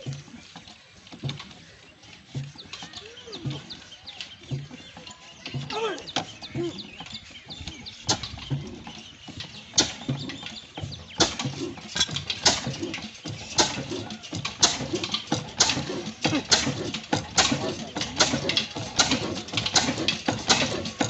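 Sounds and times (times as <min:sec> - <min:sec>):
single-cylinder engine exhaust beats: 0:08.0 - 0:21.0.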